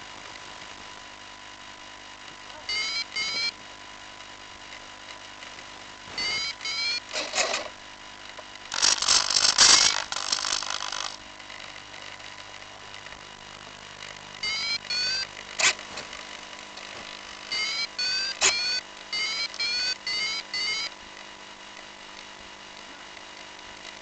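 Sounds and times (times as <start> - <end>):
electric motor spinning up: 8.7 - 11.2.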